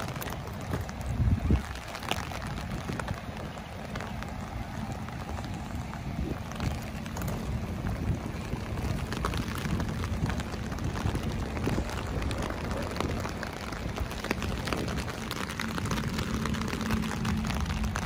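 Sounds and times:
rain falling: 0.0 - 18.0
sharp raindrop hits: 0.0 - 18.0.

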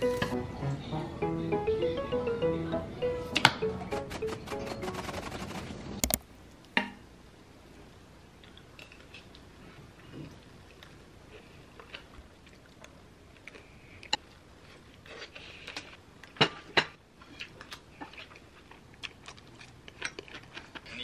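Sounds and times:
person chewing food: 8.4 - 21.0.

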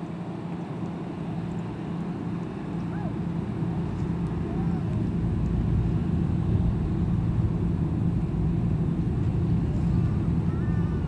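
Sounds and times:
ferry engines droning: 0.0 - 11.0.

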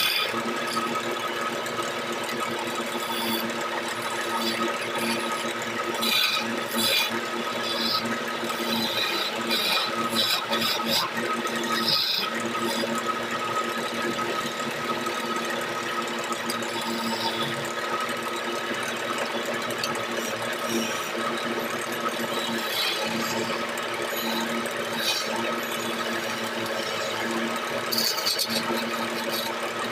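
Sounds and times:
lathe motor humming: 0.0 - 29.9
chisel scraping turning wood: 2.8 - 13.0, 27.9 - 29.9.

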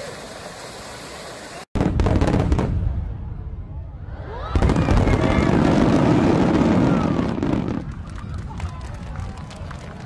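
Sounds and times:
fountain jets splashing: 0.0 - 1.7, 6.6 - 10.0
fireworks booming and crackling: 1.8 - 3.7, 4.5 - 10.0.

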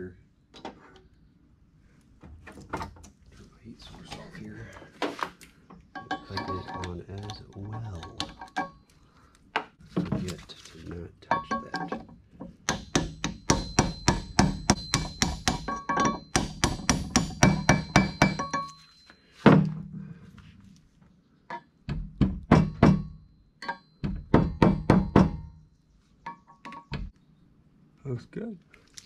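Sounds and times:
hammer striking steel pipe: 6.0 - 6.9, 12.6 - 18.8.

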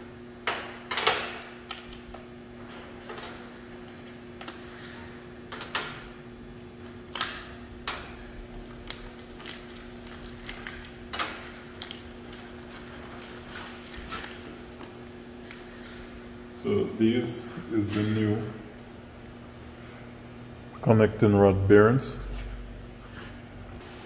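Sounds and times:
steady low hum: 0.0 - 24.0
paper rustling: 11.7 - 15.0.

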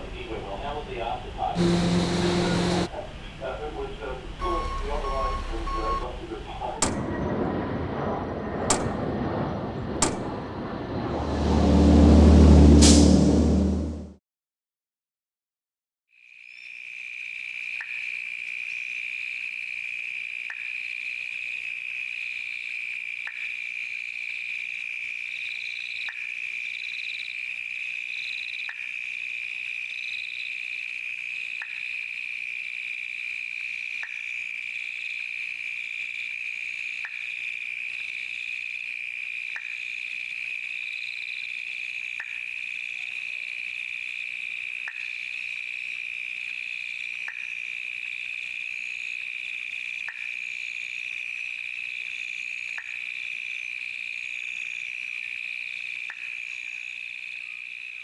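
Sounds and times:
fluttering insect chatter: 16.1 - 58.0
insect high trill: 16.2 - 58.0.

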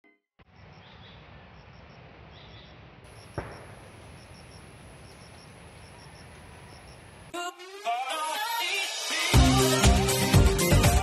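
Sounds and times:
insects chirping: 0.4 - 7.4.

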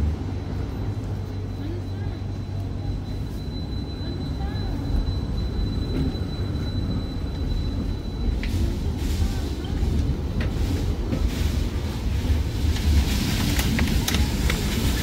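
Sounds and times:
tram running rumble: 0.0 - 15.0
wheels clicking on rails: 12.3 - 15.0.

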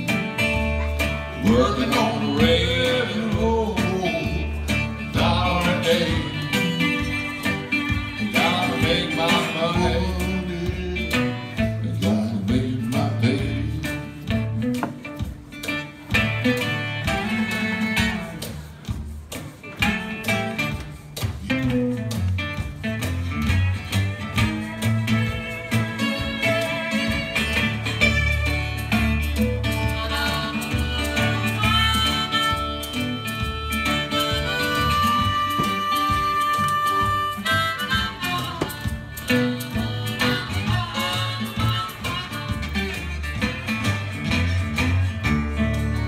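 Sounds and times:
person singing: 0.0 - 14.6, 29.2 - 43.0
acoustic guitar: 0.0 - 46.0
harmonica playing: 4.6 - 11.6, 23.8 - 46.0.

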